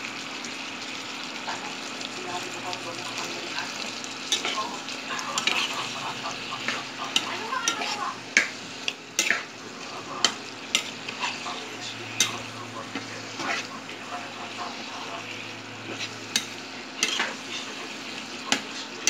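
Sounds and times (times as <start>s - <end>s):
tofu sizzling in a frying pan: 0.0s - 19.0s.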